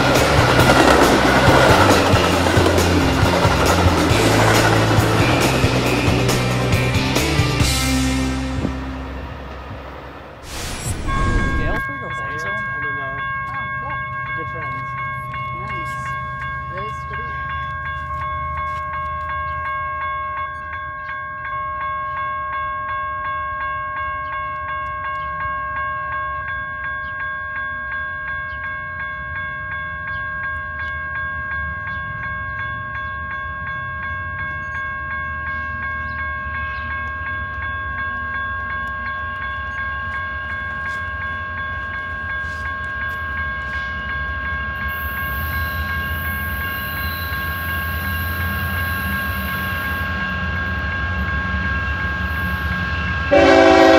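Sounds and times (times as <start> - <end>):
diesel locomotive rumble: 0.0 - 18.7
high hissing rail noise: 10.4 - 11.8
steady high-pitched tone: 10.4 - 13.2, 44.7 - 53.7.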